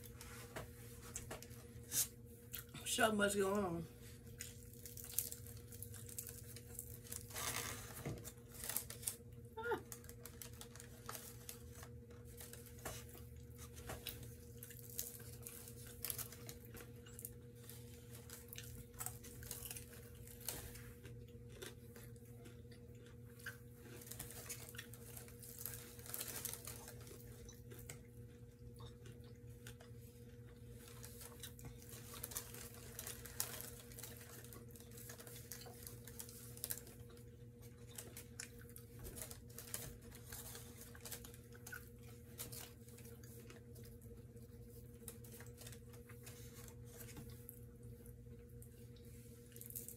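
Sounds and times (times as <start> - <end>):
wax paper crinkling: 3.3 - 21.2, 23.8 - 28.0, 29.6 - 48.1
crackles of chicken pulled apart: 4.4 - 12.8
chewing: 9.9 - 49.9.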